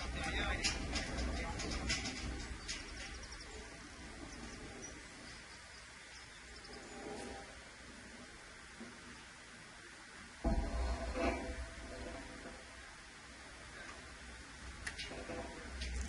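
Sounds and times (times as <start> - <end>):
low steady rumble: 0.0 - 16.0.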